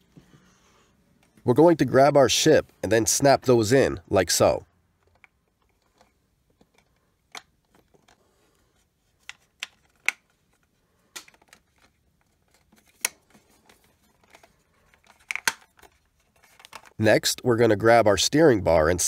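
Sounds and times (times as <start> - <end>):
hard plastic clicks and snaps: 5.0 - 8.2, 9.2 - 10.3, 11.1 - 11.9, 14.2 - 15.9
faint handling rustle: 5.5 - 17.0.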